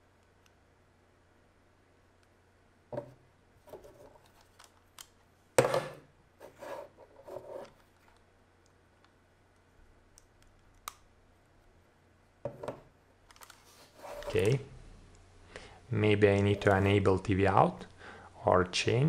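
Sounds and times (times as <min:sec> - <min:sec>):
knock on desk: 0:02.9 - 0:03.2
hands handling camera and wires: 0:03.7 - 0:05.2, 0:13.3 - 0:14.5.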